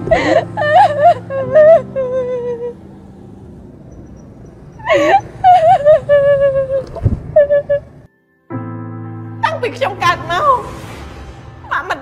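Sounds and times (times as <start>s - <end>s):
woman sobbing: 0.0s - 2.8s, 4.8s - 8.0s.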